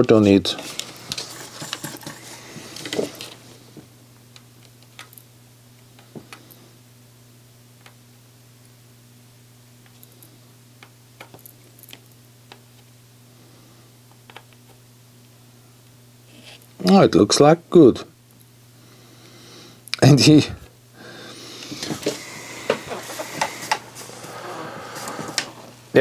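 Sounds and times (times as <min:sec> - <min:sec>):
small clicks and taps: 0:14.1 - 0:14.8
steady low hum: 0:17.6 - 0:26.0
handling noise: 0:21.6 - 0:26.0.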